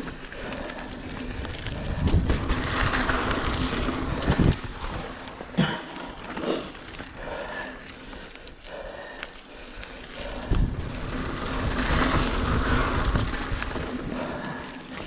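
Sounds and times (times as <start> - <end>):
bike clicks and rattles: 0.0 - 15.0
bike tyres rolling on dirt: 0.0 - 15.0
wind buffeting microphone: 0.6 - 5.2, 10.2 - 14.7.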